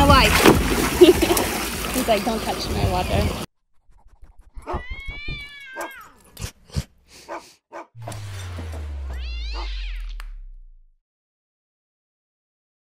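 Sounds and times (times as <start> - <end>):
cat meowing: 4.7 - 6.2, 9.2 - 10.2
low falling hum: 8.0 - 11.0.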